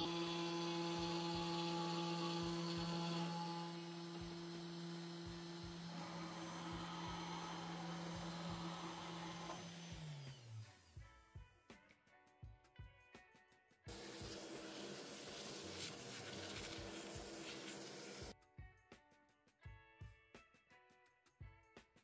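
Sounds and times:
router spindle whining: 0:00.0 - 0:10.7, 0:13.9 - 0:18.3.

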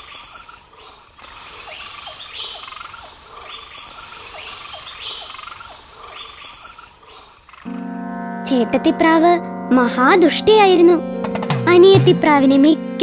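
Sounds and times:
frogs calling: 0:00.0 - 0:07.7.

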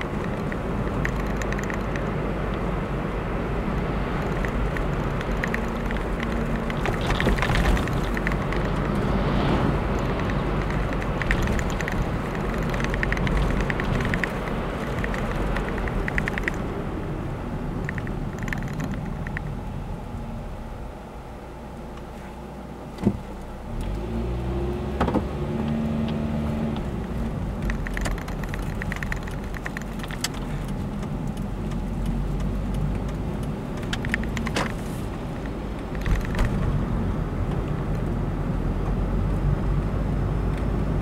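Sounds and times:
light rattling clicks: 0:00.0 - 0:02.6, 0:03.7 - 0:09.0, 0:09.9 - 0:16.7, 0:17.8 - 0:19.5, 0:25.6 - 0:36.8
car engine and tyre rumble: 0:00.0 - 0:41.0.

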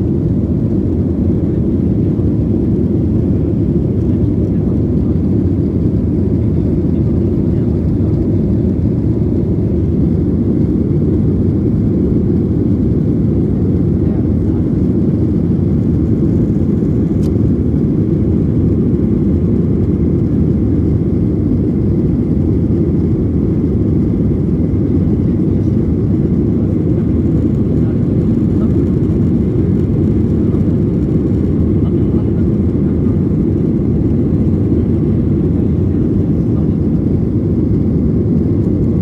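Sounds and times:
airplane cabin roar: 0:00.0 - 0:39.0.

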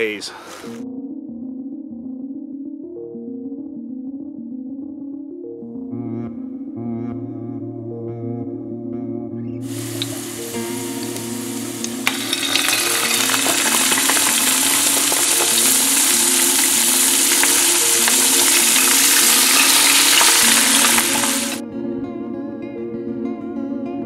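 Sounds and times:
fish fillets sizzling in oil: 0:09.7 - 0:21.6.

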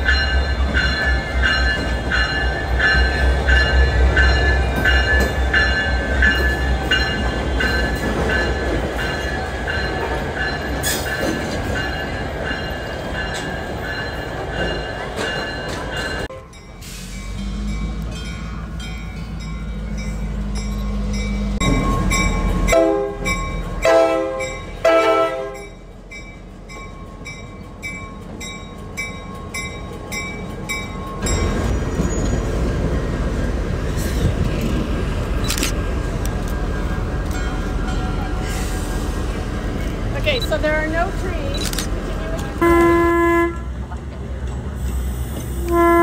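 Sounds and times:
bell ringing: 0:00.0 - 0:23.8
diesel locomotive engines rumbling: 0:00.0 - 0:46.0
train wheel noise: 0:00.0 - 0:46.0
air horn blasts: 0:22.7 - 0:25.6, 0:42.6 - 0:43.7, 0:45.6 - 0:46.0.

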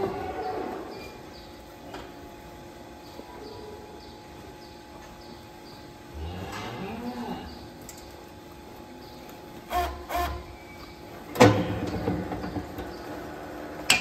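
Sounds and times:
cow mooing: 0:06.1 - 0:07.6.

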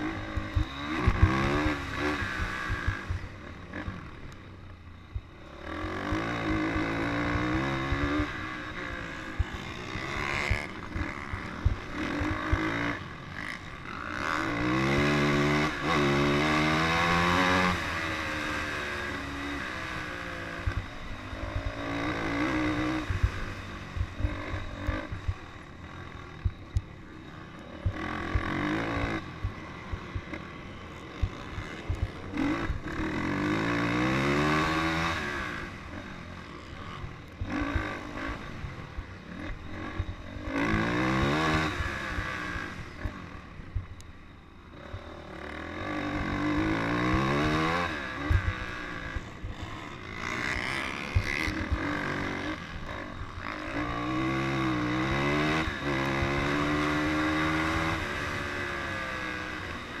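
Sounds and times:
wind: 0:00.0 - 1:00.0.

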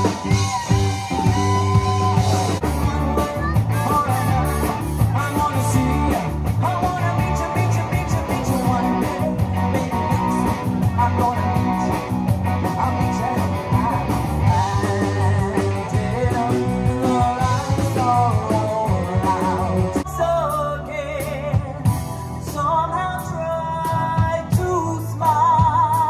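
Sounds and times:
live rock band playing: 0:00.0 - 0:26.0.

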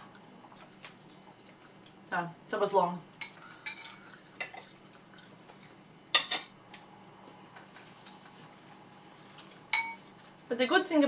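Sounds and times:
cutlery clinking on dishes: 0:03.2 - 0:04.6, 0:06.2 - 0:06.5, 0:09.7 - 0:10.0.

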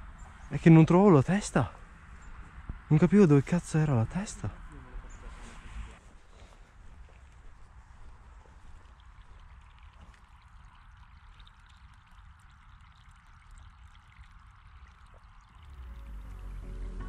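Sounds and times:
water trickling: 0:06.9 - 0:16.7.

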